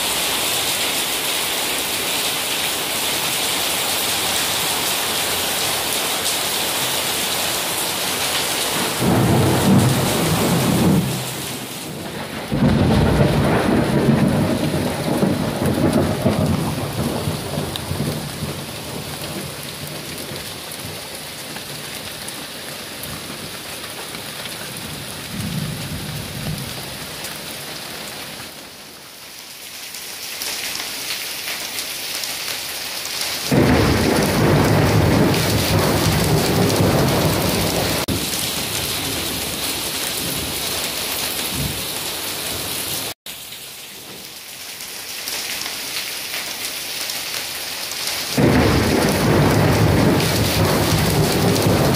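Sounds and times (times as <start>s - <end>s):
heavy rain pouring: 0.0s - 51.9s
thunder rumbling: 8.0s - 21.9s, 24.7s - 27.0s, 33.5s - 40.6s, 48.4s - 51.9s
thunder clap: 8.8s - 20.9s, 33.5s - 39.6s, 48.4s - 51.9s.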